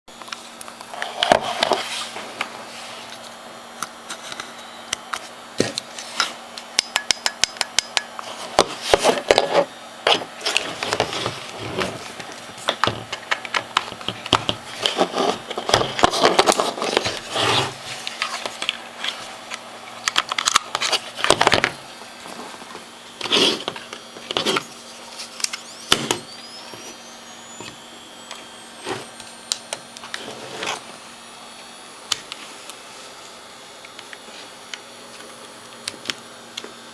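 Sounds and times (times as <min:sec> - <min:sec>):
flash recharging whine: 0:10.4 - 0:36.8.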